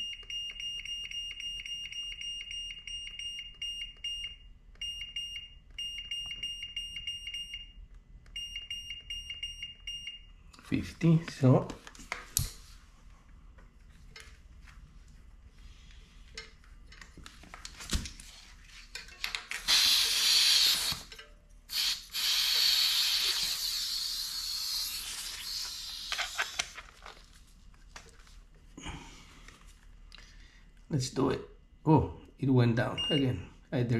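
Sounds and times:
air hissing from tyre valve: 0:19.6 - 0:21.1, 0:21.7 - 0:26.5.

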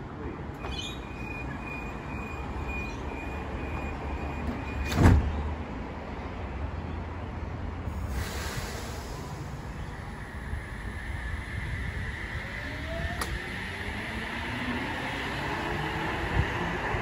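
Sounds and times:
train low hum: 0:00.0 - 0:17.0
door-closing warning tone: 0:00.6 - 0:05.3.

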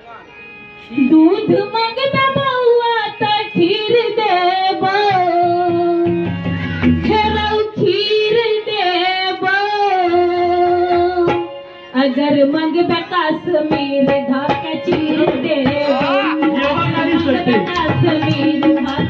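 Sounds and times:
keyboard drone: 0:00.0 - 0:19.0
woman singing into microphone: 0:00.9 - 0:19.0
hand drum playing: 0:13.7 - 0:19.0.

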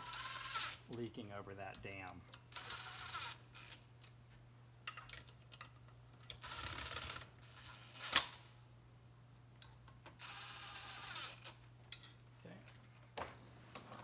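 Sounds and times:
metal parts clicking and scraping: 0:11.2 - 0:13.1.

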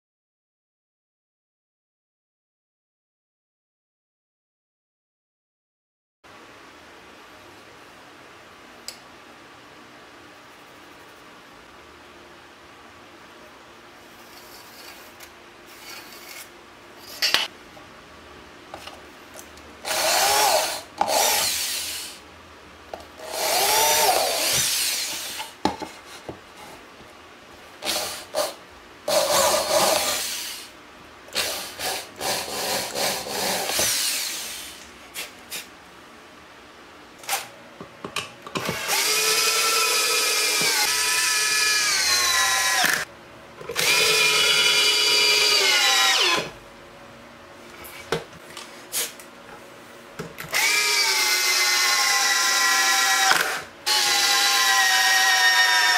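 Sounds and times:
corded electric drill boring holes: 0:19.8 - 0:22.2, 0:23.2 - 0:25.5, 0:27.8 - 0:30.7, 0:31.4 - 0:34.8, 0:38.6 - 0:43.1, 0:43.7 - 0:46.6, 0:50.5 - 0:55.9
cordless drill driving screw: 0:19.9 - 0:22.2, 0:23.2 - 0:25.5, 0:29.1 - 0:30.7, 0:31.4 - 0:34.8, 0:38.6 - 0:43.0, 0:43.7 - 0:46.5, 0:50.5 - 0:55.9.

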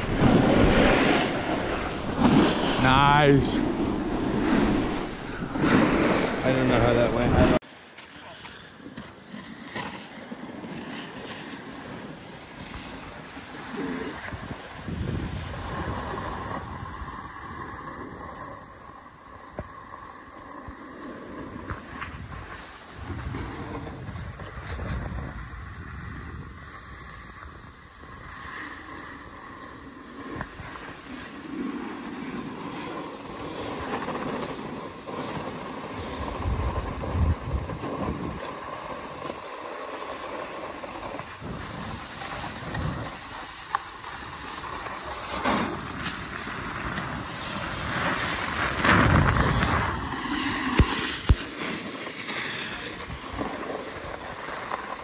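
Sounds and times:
wind buffeting microphone: 0:00.0 - 0:07.6, 0:12.9 - 0:19.9, 0:20.7 - 0:31.2, 0:35.8 - 0:39.4, 0:41.0 - 0:51.4
snowboard scraping snow: 0:00.0 - 0:55.0.

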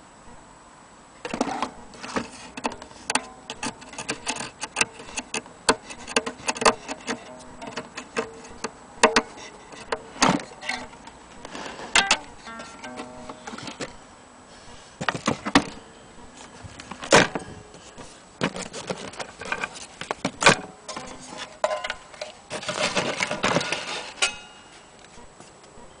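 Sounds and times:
rubbing and clatter: 0:01.2 - 0:13.9, 0:16.4 - 0:24.4.

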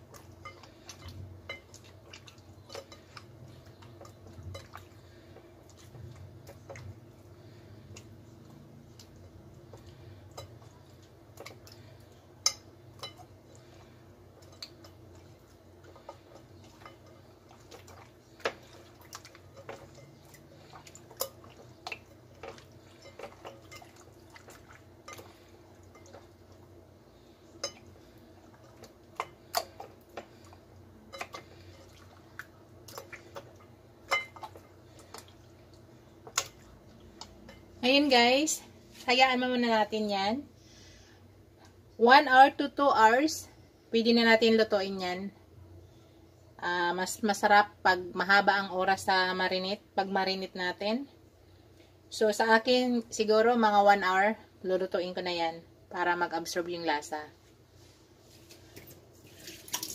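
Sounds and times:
hands kneading meat in marinade: 0:00.0 - 0:26.7, 0:57.5 - 0:59.9
low steady hum: 0:00.0 - 0:59.9.

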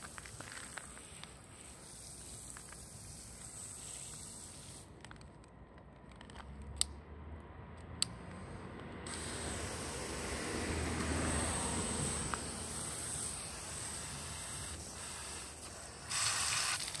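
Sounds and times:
hose spraying water on asphalt: 0:00.0 - 0:04.9, 0:09.1 - 0:17.0.

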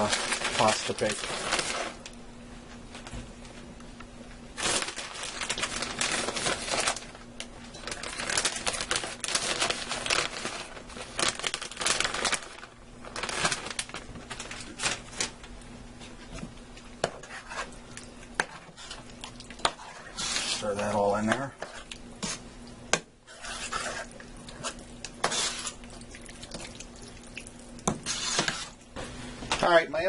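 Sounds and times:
plastic bag crinkling and rustling: 0:00.0 - 0:02.2, 0:04.6 - 0:15.5.

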